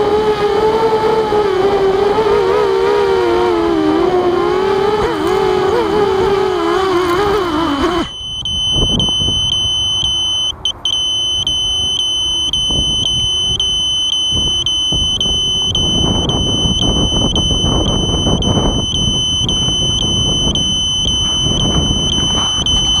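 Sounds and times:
quadcopter motors whining: 0.0s - 23.0s
wind buffeting microphone: 0.0s - 23.0s
high-pitched buzzer beeps: 7.0s - 23.0s.

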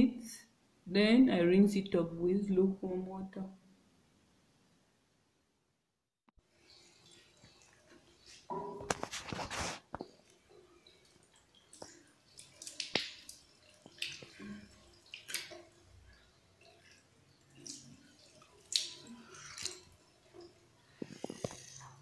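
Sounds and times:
water dripping: 6.4s - 22.0s
water splashing over basin: 6.5s - 22.0s.

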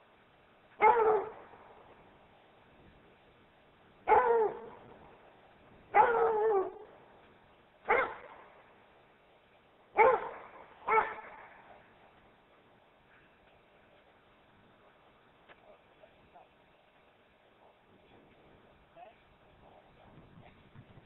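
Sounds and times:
dog barking: 0.8s - 1.5s, 4.1s - 4.8s, 5.9s - 6.9s, 7.9s - 8.4s, 10.0s - 11.9s.

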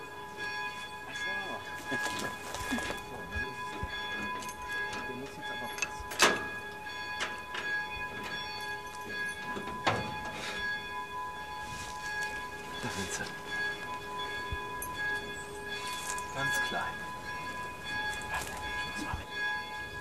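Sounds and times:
keys clinking: 14.7s - 16.6s.

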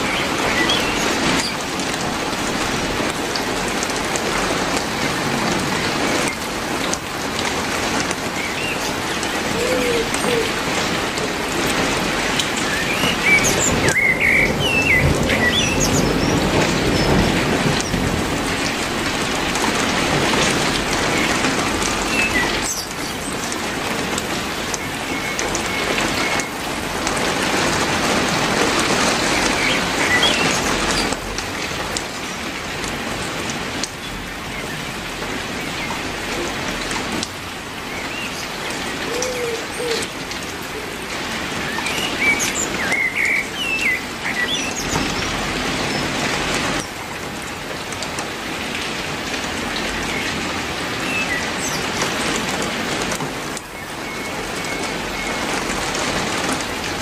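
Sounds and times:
heavy rain on leaves: 0.0s - 57.0s.

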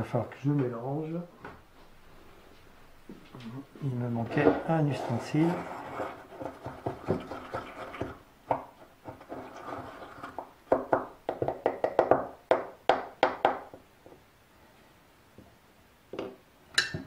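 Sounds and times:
wooden stick scraping glass jar: 4.2s - 8.2s, 9.1s - 10.5s.

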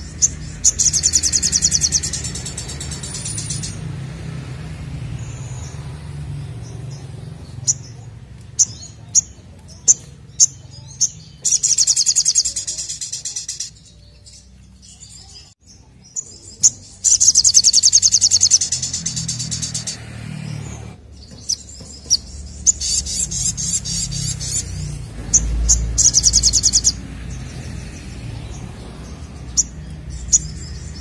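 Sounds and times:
bird trilling: 0.0s - 3.9s, 6.8s - 14.4s, 16.2s - 27.0s
bird chirping: 0.0s - 31.0s.

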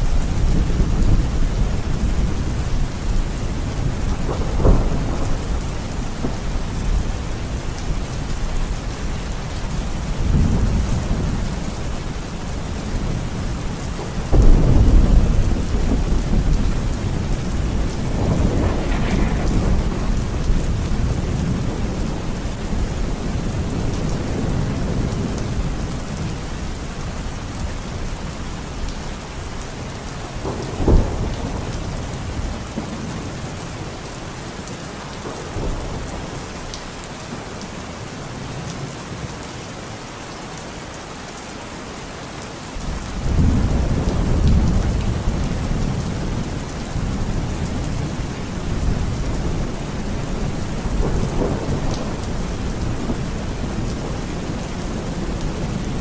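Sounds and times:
thunder rumbling: 0.0s - 26.4s, 30.3s - 33.6s, 43.1s - 56.0s
heavy rain pouring: 0.0s - 56.0s
thunder clap: 14.0s - 22.0s.

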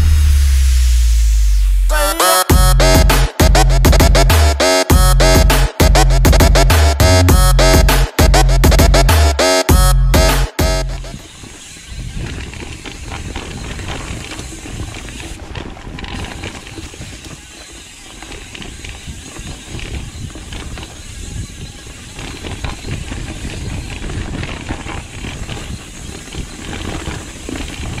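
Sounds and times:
bike rattling and knocking: 9.8s - 28.0s
wind noise on microphone: 11.0s - 28.0s
tyres rolling over dirt and leaves: 11.1s - 28.0s.

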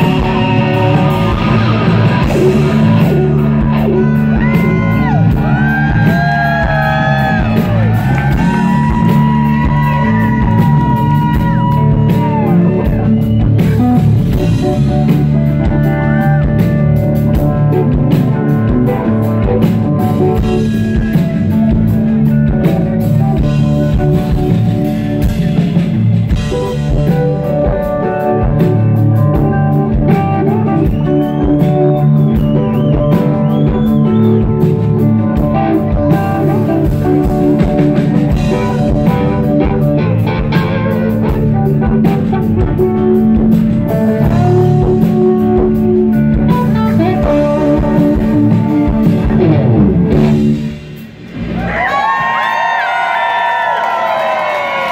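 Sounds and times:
crowd cheering: 0.0s - 17.5s, 51.3s - 54.9s
live rock band playing: 0.0s - 54.9s.

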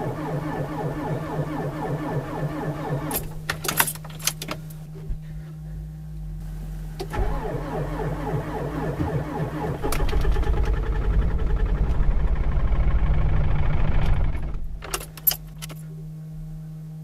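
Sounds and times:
ignition keys jangling and clicking: 3.1s - 4.8s, 14.8s - 15.9s.

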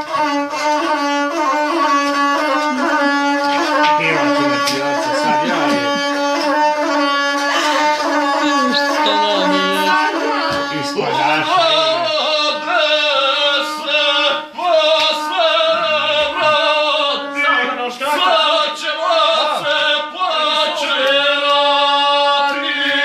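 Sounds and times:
bowed folk fiddle melody: 0.0s - 23.0s
man singing: 3.1s - 6.4s, 10.6s - 23.0s.

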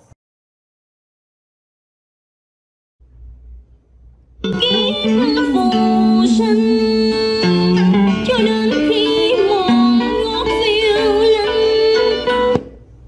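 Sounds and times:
person singing over instruments: 4.4s - 12.6s.

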